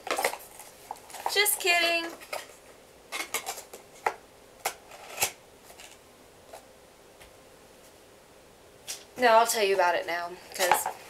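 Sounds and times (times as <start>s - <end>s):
objects clicking and knocking: 0.0s - 1.5s, 10.5s - 11.0s.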